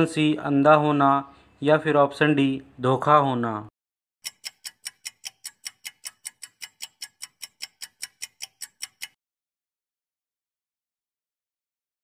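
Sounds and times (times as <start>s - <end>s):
countdown timer ticking: 4.2s - 9.2s.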